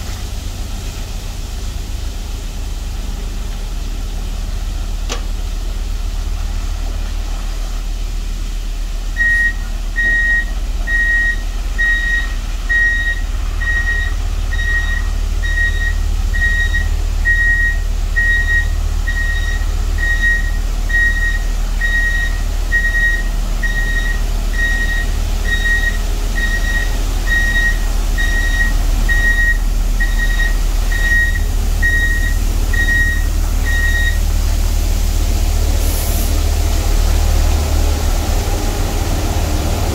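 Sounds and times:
diesel truck engine running: 0.0s - 39.9s
reversing alarm beeping: 9.2s - 34.3s.

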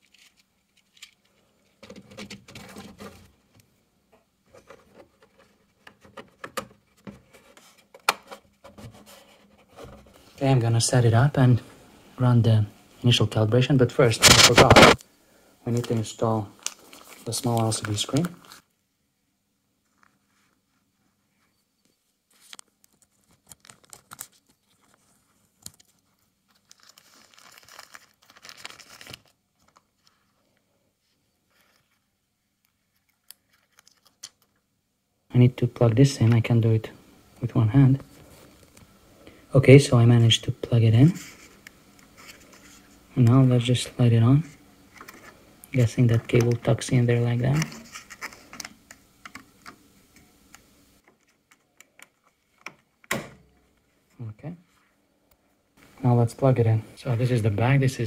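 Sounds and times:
plastic scraping on plastic: 0.0s - 3.4s, 14.2s - 15.0s, 47.5s - 49.8s
plastic bag crinkling and tearing: 22.9s - 30.2s.

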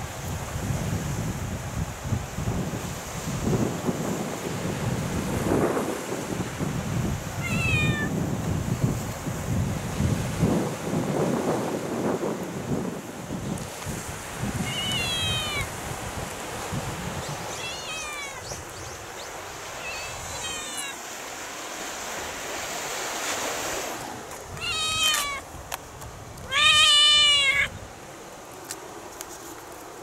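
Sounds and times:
wind and surf hiss: 0.0s - 30.0s
cat meowing: 7.4s - 8.1s, 14.6s - 15.7s, 17.5s - 18.5s, 19.8s - 21.0s, 24.6s - 25.4s, 26.5s - 27.8s.

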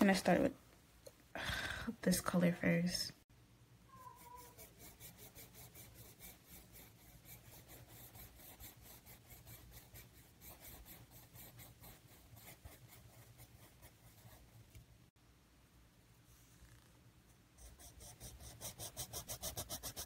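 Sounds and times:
pencil scratching on paper: 4.2s - 14.8s, 17.6s - 20.0s.

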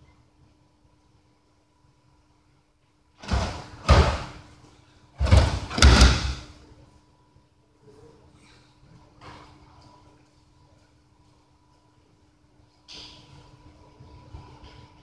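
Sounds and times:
body falling onto gym mats: 3.2s - 4.6s, 5.2s - 6.6s.

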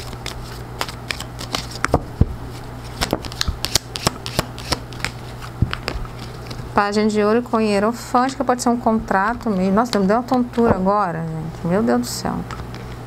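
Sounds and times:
cards clicking and slapping: 0.0s - 2.0s, 2.9s - 6.6s
steady low hum: 0.0s - 13.0s.

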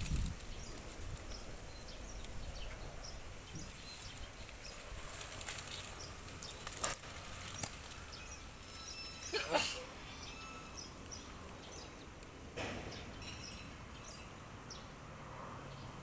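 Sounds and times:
goat scuffling: 3.5s - 8.7s
sharp knocks: 12.6s - 13.4s.

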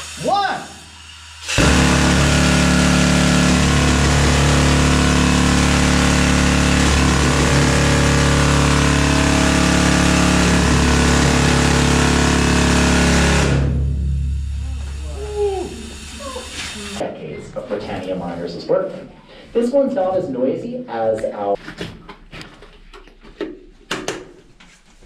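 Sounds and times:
rock drill hammering: 1.5s - 13.7s.

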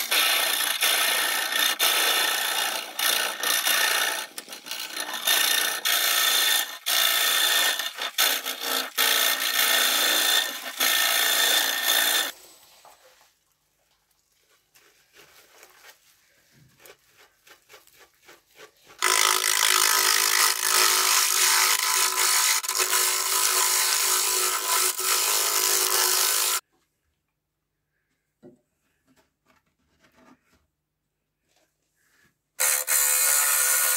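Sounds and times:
lathe tool scraping wood: 0.0s - 12.4s, 18.6s - 26.6s, 32.6s - 33.9s.

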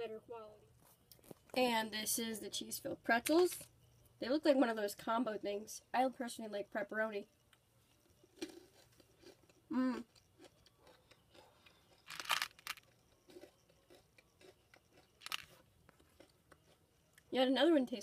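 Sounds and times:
crunching and chewing snacks: 0.9s - 1.6s, 7.9s - 17.3s.

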